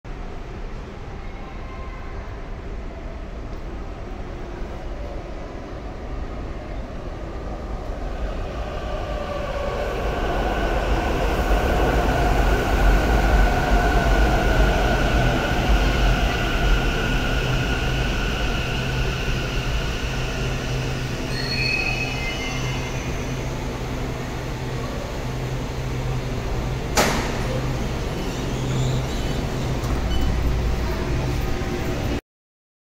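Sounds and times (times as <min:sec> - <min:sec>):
train low hum: 0:00.1 - 0:32.2
train wheels and motors whining: 0:08.4 - 0:32.0.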